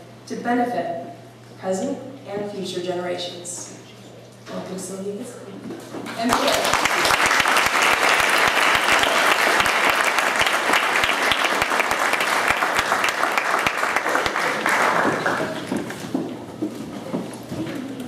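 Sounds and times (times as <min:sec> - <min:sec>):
audience applauding: 0:06.2 - 0:16.1.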